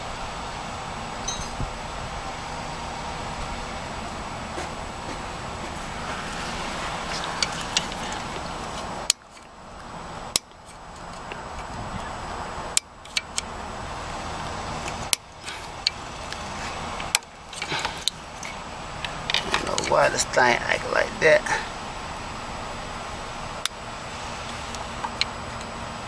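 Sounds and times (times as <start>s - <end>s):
steady background noise: 0.0s - 26.0s.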